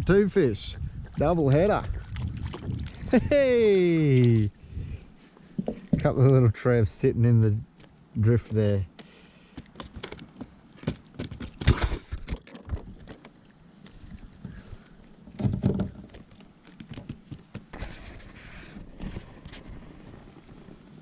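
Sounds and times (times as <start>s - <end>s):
knocks and clatter against kayak: 5.4s - 6.4s, 7.8s - 21.0s.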